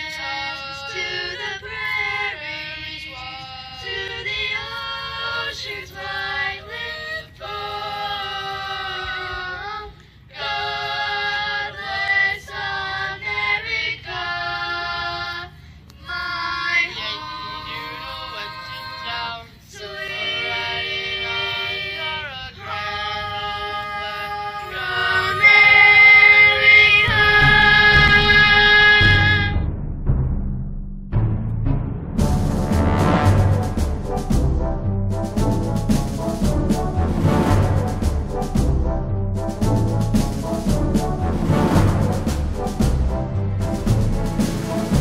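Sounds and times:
children singing through pa system: 0:00.0 - 0:29.6.

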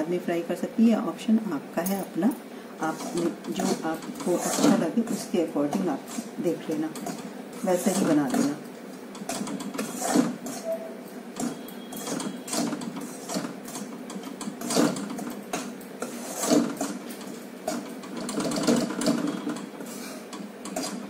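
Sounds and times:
spatula scraping flour in a wok: 0:09.7 - 0:10.7, 0:11.4 - 0:13.8, 0:16.0 - 0:17.0.

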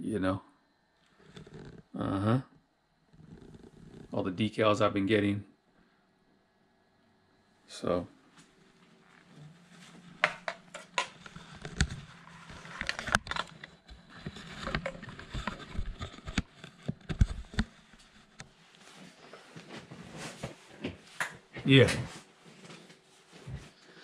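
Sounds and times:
camera handling knocks and rubbing: 0:10.2 - 0:18.4.

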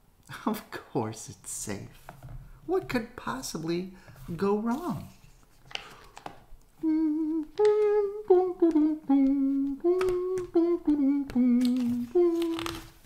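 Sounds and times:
person humming a tune: 0:06.8 - 0:13.0
book page rustling: 0:11.5 - 0:13.0.

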